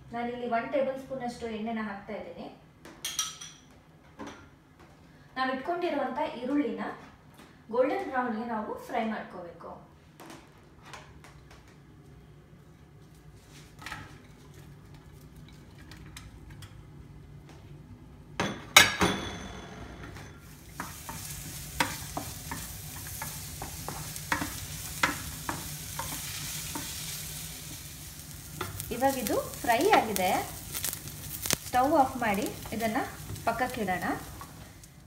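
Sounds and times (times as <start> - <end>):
onion clattering into pan: 20.4 - 34.9
onion sizzling: 20.4 - 35.0.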